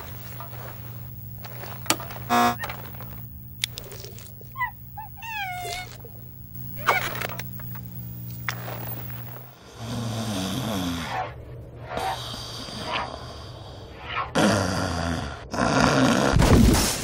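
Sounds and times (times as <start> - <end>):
low electrical hum: 0.0 - 13.6.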